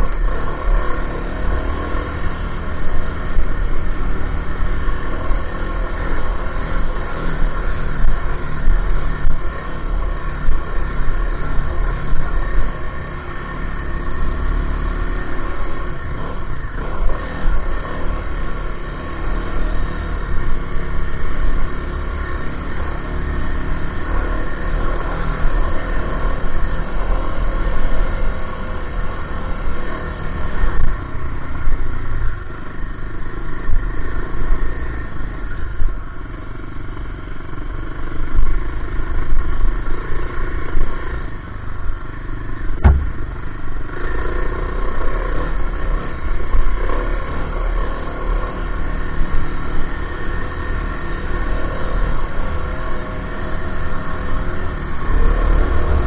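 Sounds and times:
sharp knock: 42.8 - 43.6
dirt bike engine revving: 42.8 - 56.0.

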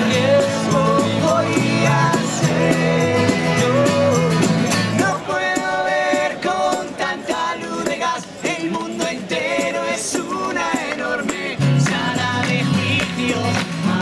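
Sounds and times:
bass: 0.0 - 5.3, 11.2 - 14.0
male voices singing together: 0.0 - 14.0
strummed acoustic guitars: 0.0 - 14.0.

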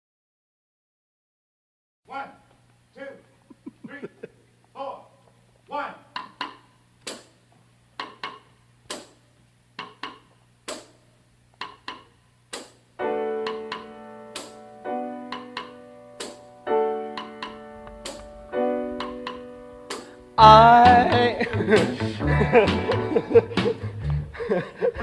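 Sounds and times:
piano notes and chords: 13.0 - 24.3.

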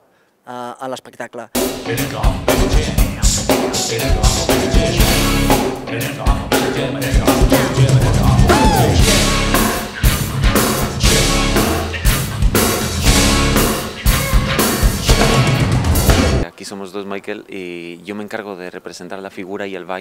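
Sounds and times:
bass drum beat: 1.6 - 16.5
pop-rock band playing: 1.6 - 16.5.

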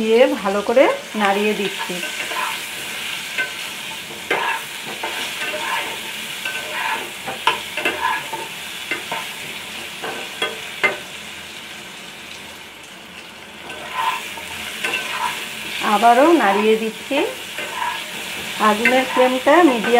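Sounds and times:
potatoes sizzling in oil: 0.0 - 19.9
spatula scraping and clinking pan: 1.6 - 11.1, 13.6 - 19.9.

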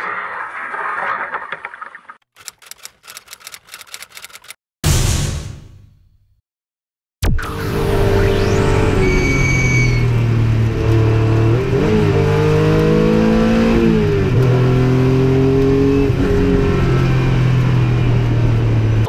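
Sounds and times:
rising whine: 7.2 - 11.1
race car engine revving: 10.3 - 17.6.

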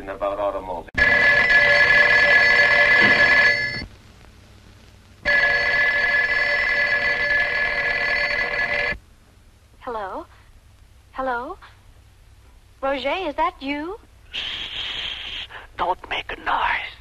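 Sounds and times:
telephone bell ringing: 1.0 - 3.8, 5.2 - 9.0.

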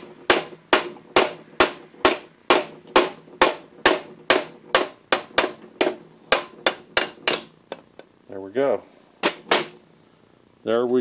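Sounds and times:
mallet striking metal spindle: 0.0 - 7.6.

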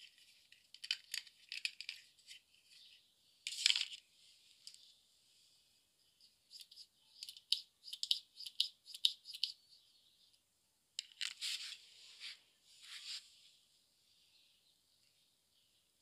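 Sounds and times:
plastic toys clicking and rattling: 0.0 - 2.4, 6.6 - 9.5.

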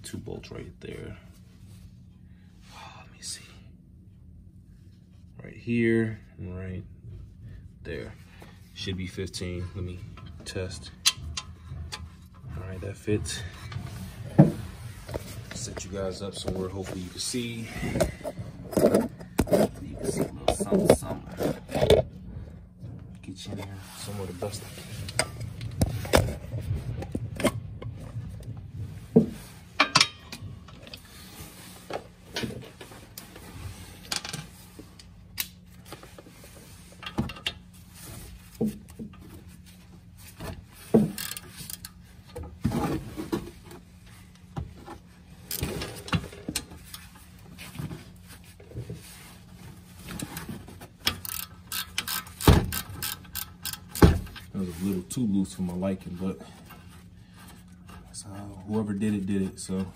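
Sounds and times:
metal tools knocking and clinking: 29.8 - 30.4.

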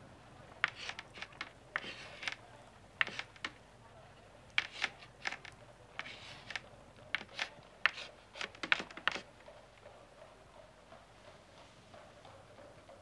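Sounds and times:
paper rustling: 0.6 - 2.4, 3.0 - 3.6, 4.6 - 9.3.

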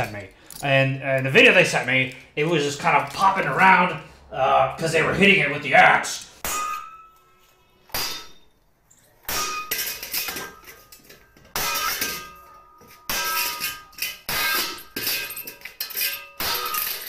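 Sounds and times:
axe clanging on steel helmet: 6.4 - 8.6, 9.2 - 17.0.

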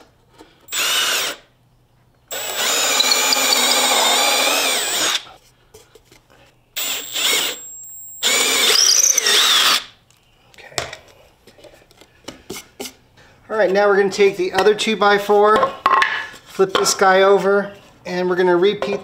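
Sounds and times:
cordless drill boring into wood: 0.7 - 1.4, 2.3 - 5.2, 6.8 - 9.9.

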